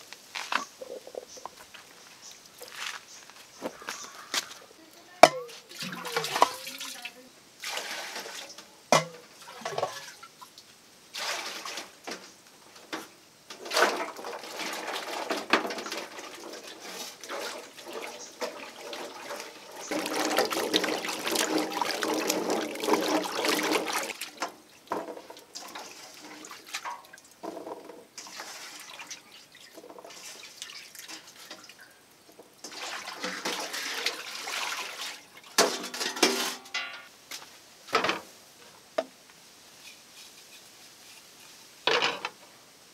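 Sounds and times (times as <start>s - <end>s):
water sloshing in metal basin: 5.2s - 10.5s, 11.1s - 37.1s
water dripping: 5.2s - 10.7s, 17.2s - 36.0s
hands scrubbing roots: 18.8s - 24.4s.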